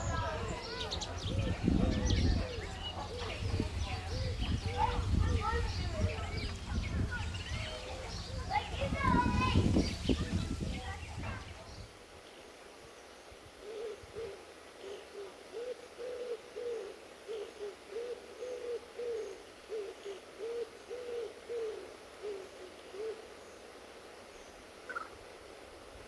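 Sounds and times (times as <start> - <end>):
pigeon cooing: 0.0 - 8.6, 13.6 - 23.3.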